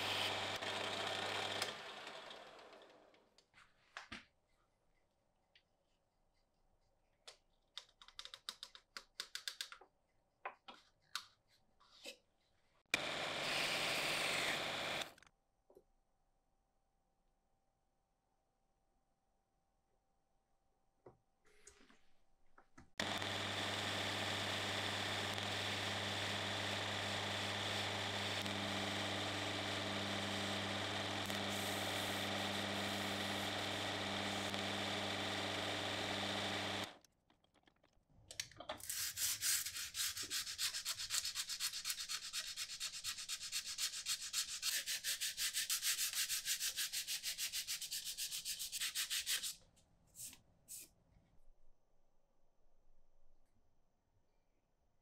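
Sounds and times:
wood lathe motor running: 0.0 - 3.2, 13.0 - 15.1, 23.0 - 37.0
sandpaper rasping on wood: 38.9 - 49.6.

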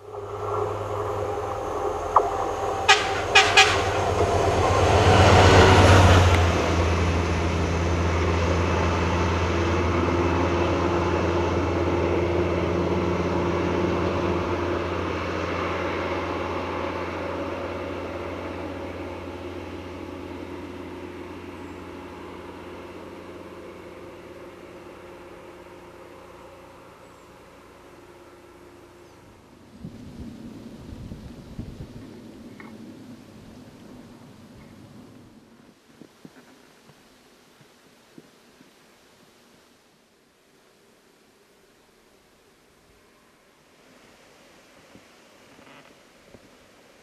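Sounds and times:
railcar engine hum and running noise: 0.0 - 35.8.

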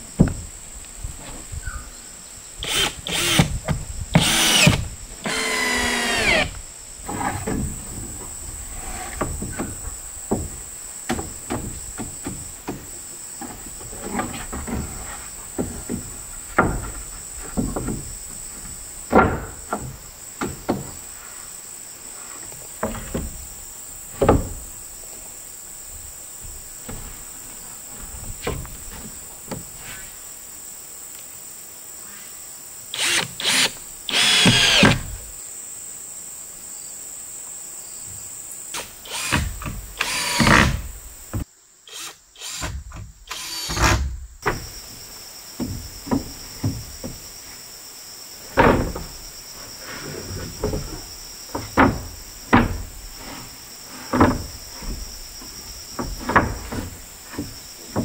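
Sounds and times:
power drill running: 2.6 - 3.5, 4.2 - 6.5, 33.0 - 35.0, 40.0 - 40.5, 43.3 - 43.8
wood knocking and tapping: 9.2 - 14.9, 15.6 - 21.0, 45.6 - 47.3, 50.6 - 52.9, 54.1 - 58.0.

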